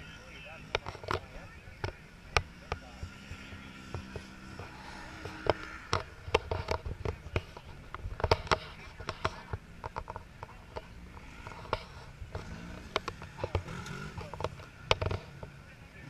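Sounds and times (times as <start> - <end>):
utility vehicle engine passing: 2.5 - 6.8, 11.0 - 15.4
sharp knocks and pops: 3.9 - 15.5.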